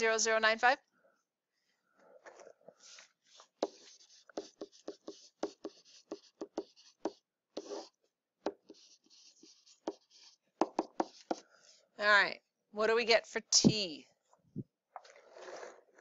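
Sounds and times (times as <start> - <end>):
pen tapping and scratching: 2.8 - 7.9, 8.5 - 11.5.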